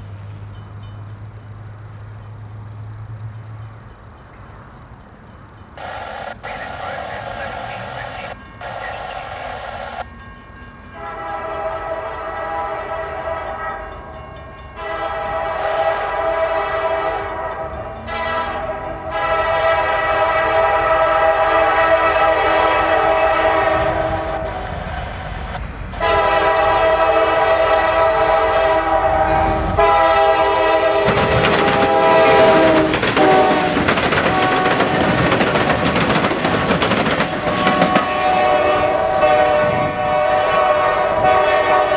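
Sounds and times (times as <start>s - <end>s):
train rumble and wheel clatter: 0.0s - 41.9s
locomotive air horn blasts: 10.9s - 14.0s, 14.7s - 25.0s, 26.0s - 35.1s, 37.4s - 41.9s.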